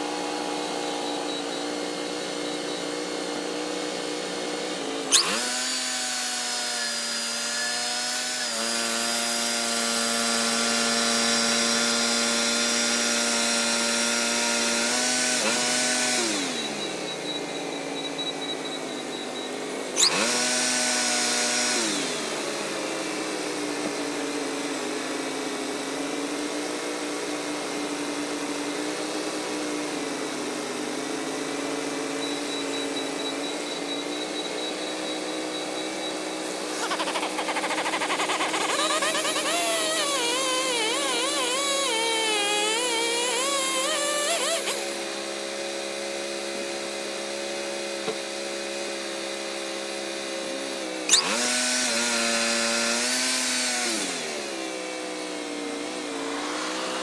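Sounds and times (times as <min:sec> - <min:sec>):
sawmill running: 0:00.0 - 0:57.0.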